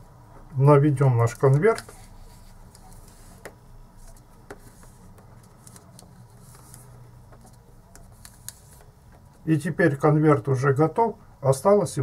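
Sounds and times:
paper rustling: 1.2 - 9.4
soft clicks of paper and fingertips: 1.3 - 9.4.

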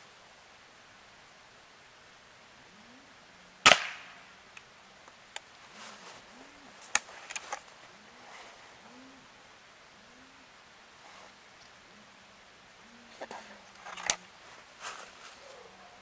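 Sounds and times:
air rifle shot: 3.6 - 4.2.

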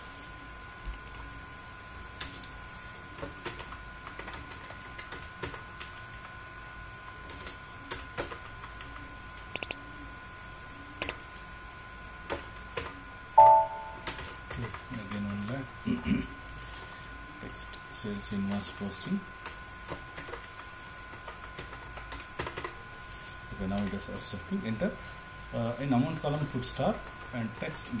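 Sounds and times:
mouse clicks: 9.6 - 9.8
faint two-note hum: 13.4 - 14.2.

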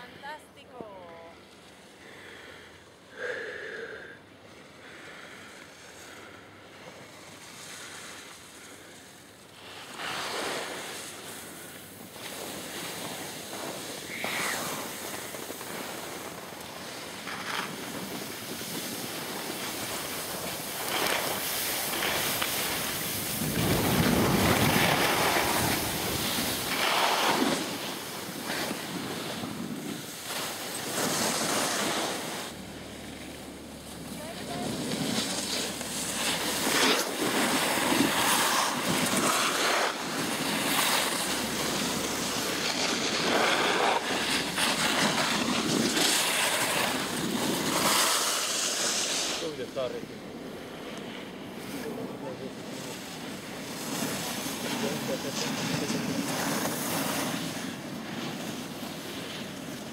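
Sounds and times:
skis scraping on snow: 4.6 - 50.0, 50.6 - 59.9
wind buffeting microphone: 17.7 - 30.2.

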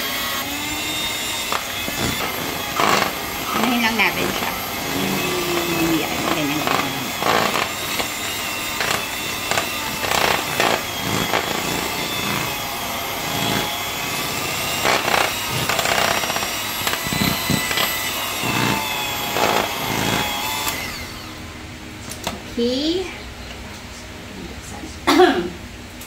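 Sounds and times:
electric hand mixer whining: 0.0 - 21.7
beaters scraping and knocking bowl: 1.1 - 20.8.

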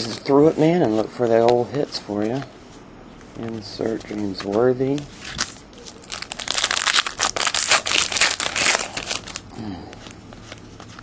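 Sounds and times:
wrapper crinkling as torn open: 5.2 - 11.0.

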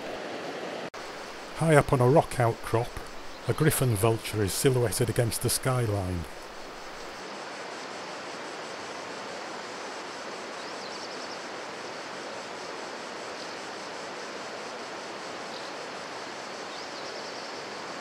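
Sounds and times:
river water rushing: 0.0 - 10.6.

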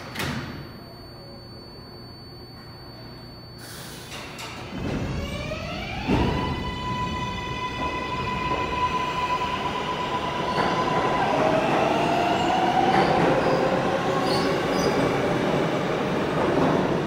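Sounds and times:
subway train propulsion whine: 0.0 - 17.0
train cars running noise: 3.6 - 17.0.

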